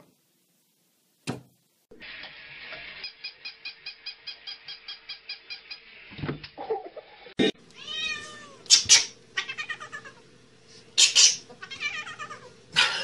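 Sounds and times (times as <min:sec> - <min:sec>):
faint steady hum: 0:07.4 - 0:13.0
cat meowing: 0:07.8 - 0:08.7, 0:09.4 - 0:10.2, 0:11.6 - 0:12.5.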